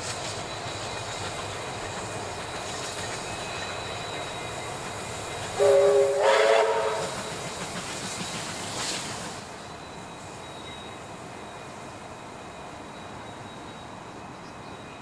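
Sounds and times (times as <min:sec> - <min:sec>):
train rumbling past: 0:00.0 - 0:15.0
locomotive chime horn: 0:05.6 - 0:07.2.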